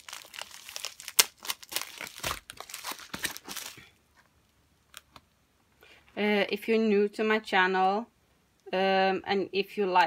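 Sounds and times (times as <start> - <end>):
plastic packaging crinkling: 0.0 - 4.0.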